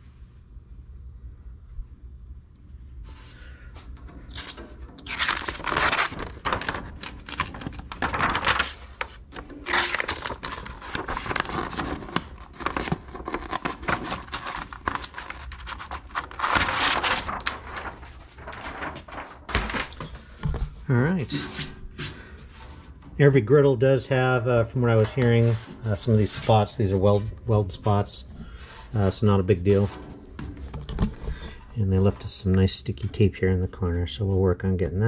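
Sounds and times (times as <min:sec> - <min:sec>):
plastic sheet crinkling and rustling: 0:04.0 - 0:21.8, 0:24.6 - 0:32.4.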